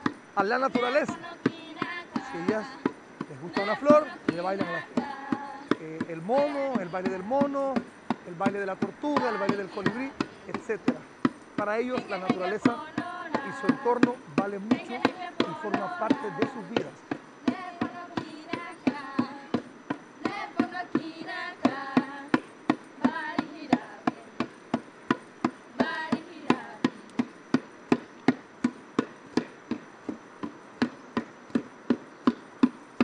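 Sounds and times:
women singing: 0:00.0 - 0:10.7, 0:11.7 - 0:24.8, 0:25.5 - 0:27.2
hand drum beating: 0:00.0 - 0:28.1.

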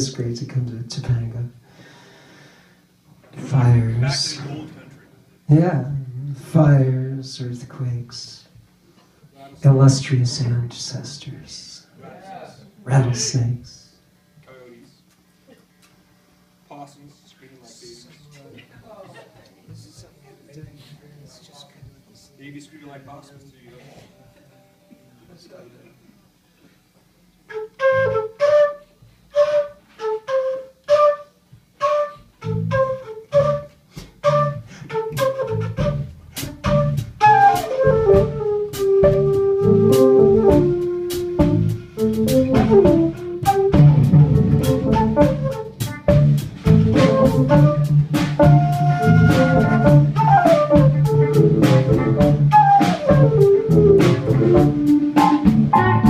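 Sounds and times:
flute melody: 0:27.4 - 0:56.0
live band with drums: 0:27.6 - 0:56.0
repeated short notes: 0:31.8 - 0:56.0
bass line: 0:32.4 - 0:56.0.

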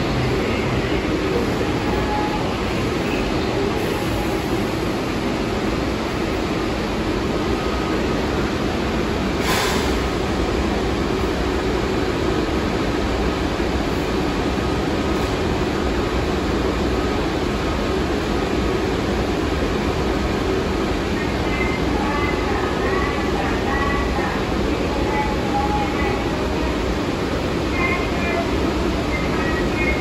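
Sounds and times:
subway car equipment humming: 0:00.0 - 0:30.0
short air hiss: 0:09.4 - 0:10.0.

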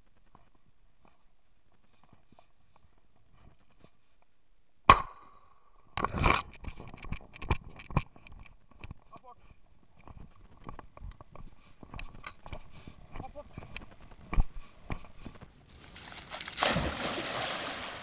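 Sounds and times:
rustling: 0:11.2 - 0:18.0.

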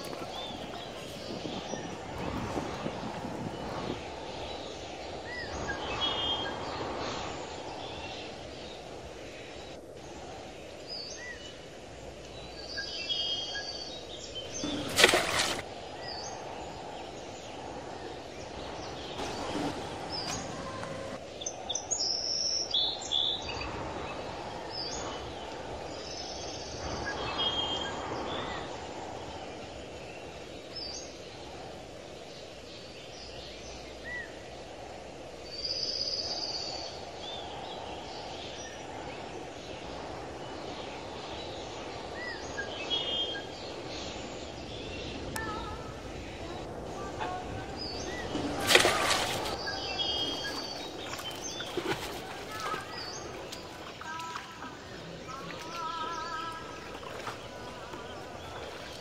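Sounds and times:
bird chirps and tweets: 0:00.0 - 0:06.9, 0:35.5 - 0:59.0.

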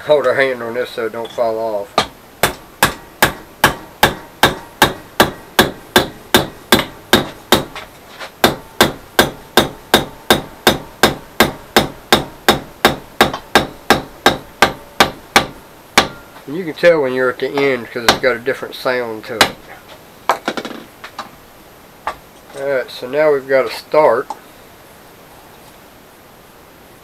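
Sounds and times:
hammer striking steel rod: 0:02.0 - 0:07.8, 0:08.4 - 0:16.4.

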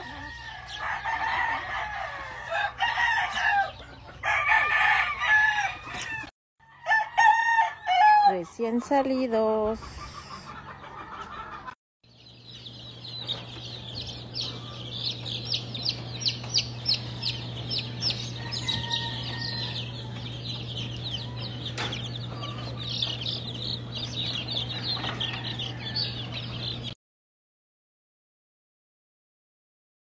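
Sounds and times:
chicks peeping: 0:00.0 - 0:06.3, 0:08.4 - 0:27.0
steady low hum: 0:12.3 - 0:27.0.

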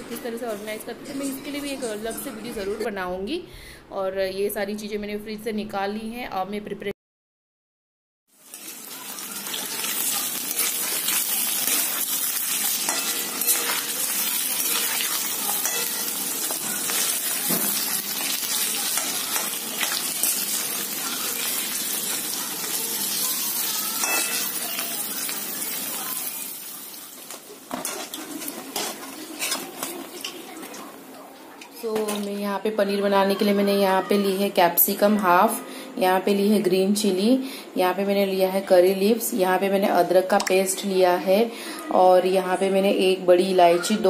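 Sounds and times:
cheese sizzling in hot oil: 0:08.3 - 0:31.2
metal spoon scraping pan: 0:10.5 - 0:20.6, 0:23.6 - 0:24.9, 0:27.3 - 0:30.8.

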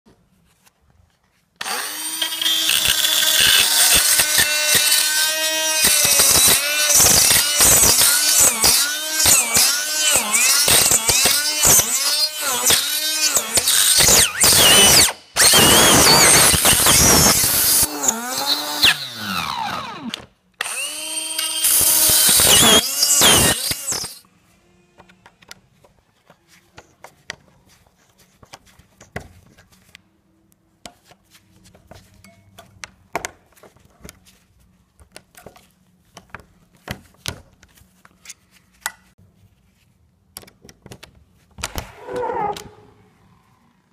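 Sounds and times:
rotary tool drilling metal: 0:01.6 - 0:24.2.

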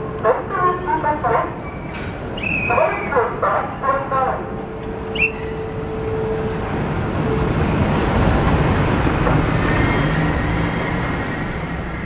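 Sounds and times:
heavy vehicle rumble: 0:04.7 - 0:12.0.

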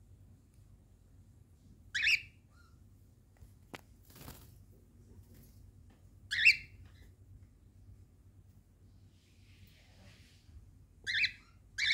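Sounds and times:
cockatiel calls: 0:01.9 - 0:02.8, 0:06.3 - 0:07.0, 0:11.0 - 0:11.9.

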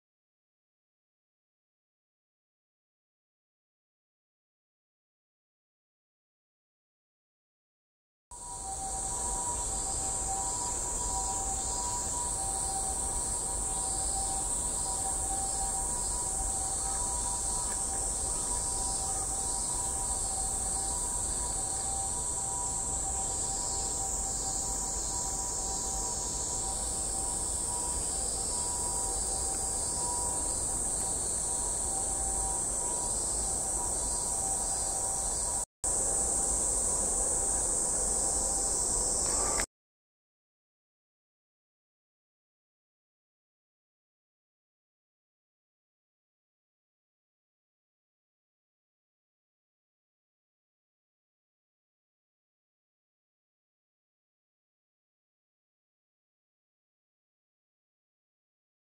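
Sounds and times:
high-pitched insect drone: 0:08.4 - 0:39.7.

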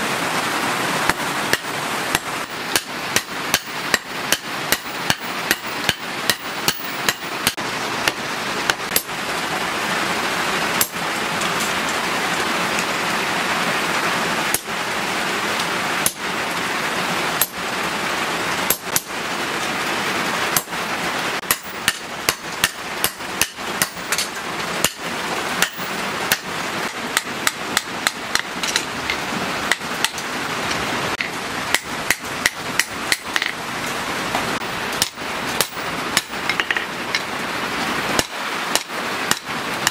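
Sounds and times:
hammer striking hot steel on anvil: 0:01.1 - 0:09.1, 0:10.8 - 0:11.0, 0:16.0 - 0:16.2, 0:18.7 - 0:19.1, 0:20.6 - 0:20.8, 0:21.4 - 0:30.2, 0:31.2 - 0:33.6, 0:35.0 - 0:37.3, 0:38.2 - 0:39.9.

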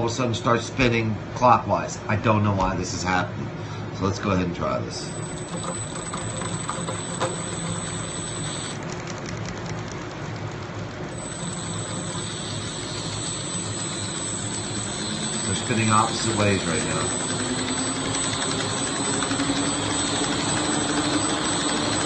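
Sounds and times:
small electric motor humming: 0:05.1 - 0:09.6, 0:11.1 - 0:22.0.

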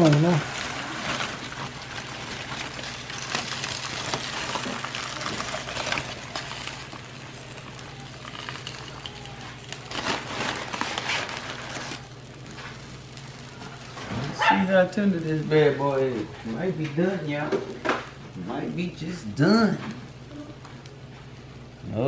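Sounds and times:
aluminium foil crinkling: 0:00.0 - 0:21.7
steady low hum: 0:00.0 - 0:22.0.

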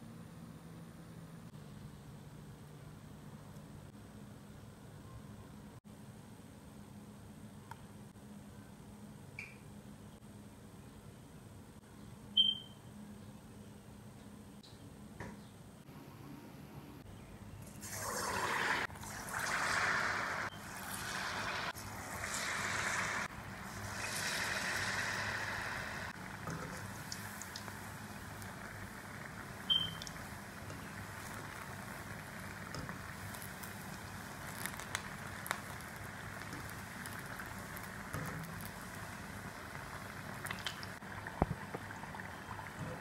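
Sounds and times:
oil sizzling and bubbling: 0:17.6 - 0:43.0.

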